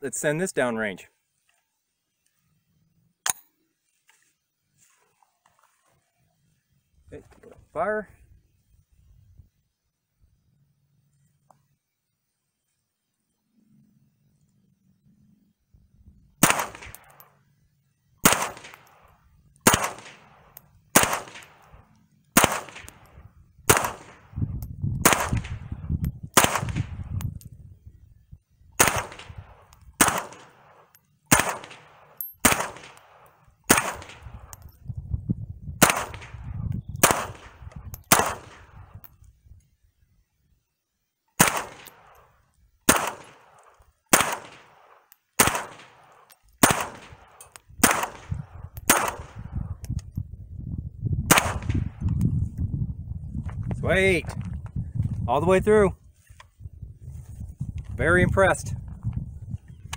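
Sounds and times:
rifle shots: 0:16.4 - 0:17.2, 0:18.2 - 0:24.3, 0:25.0 - 0:25.7, 0:26.3 - 0:27.1, 0:28.8 - 0:34.5, 0:35.8 - 0:38.8, 0:41.4 - 0:42.2, 0:42.9 - 0:49.6, 0:51.3 - 0:52.0.

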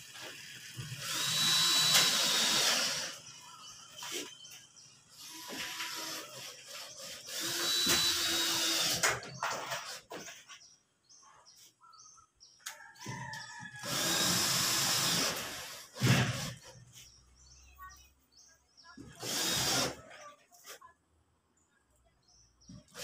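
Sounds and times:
cordless drill driving screws: 0:00.8 - 0:03.3, 0:05.2 - 0:10.0, 0:13.8 - 0:16.6, 0:19.2 - 0:20.0.

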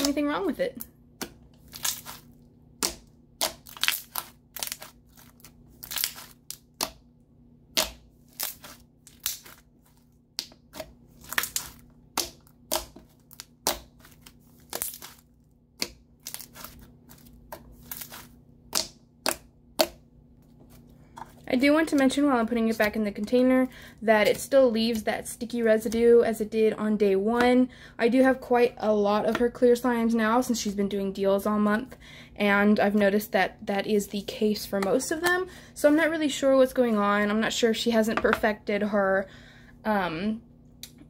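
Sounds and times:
slime clicking and popping: 0:10.4 - 0:13.9.

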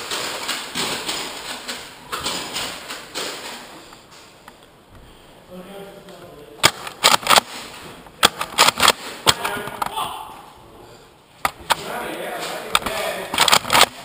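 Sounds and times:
foam dart blasters clacking: 0:06.6 - 0:09.9, 0:12.6 - 0:14.0
distant shouting: 0:09.4 - 0:10.8.

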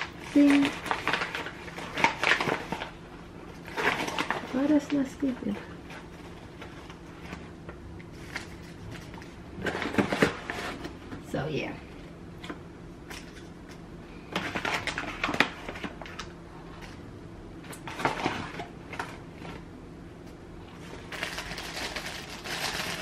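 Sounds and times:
paper and plastic pouches crinkling: 0:00.0 - 0:07.5, 0:14.2 - 0:17.0, 0:20.8 - 0:23.0.

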